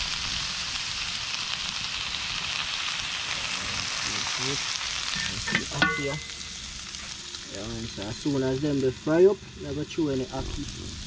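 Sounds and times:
food sizzling in hot oil: 0:00.0 - 0:11.0.

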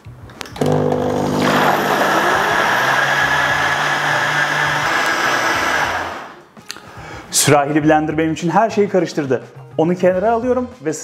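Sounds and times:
blender motor running: 0:00.6 - 0:06.4
blades churning liquid: 0:01.3 - 0:06.4.

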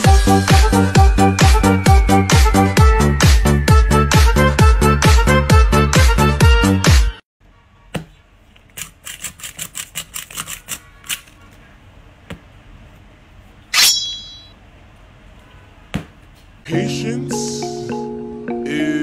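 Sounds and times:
bright high-pitched ringing: 0:13.8 - 0:14.6.

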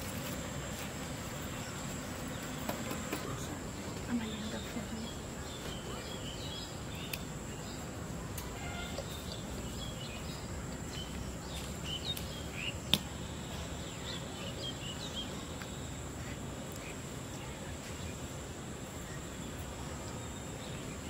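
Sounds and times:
background hiss: 0:00.0 - 0:21.0
bird chirps: 0:08.5 - 0:15.8.

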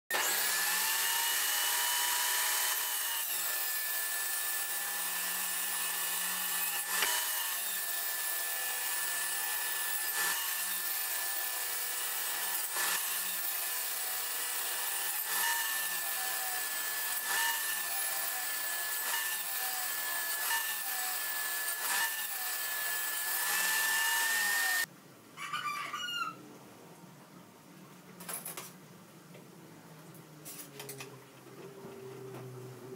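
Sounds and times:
electric power saw whining: 0:00.1 - 0:24.9.

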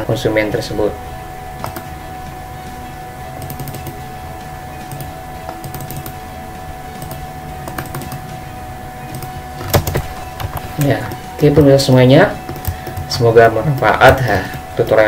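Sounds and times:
steady hum with high tone: 0:00.0 - 0:15.0
computer mouse clicks: 0:12.5 - 0:13.1.

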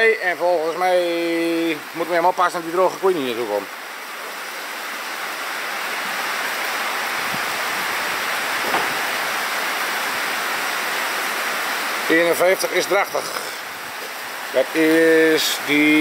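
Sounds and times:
heavy rain on a roof: 0:00.0 - 0:16.0.

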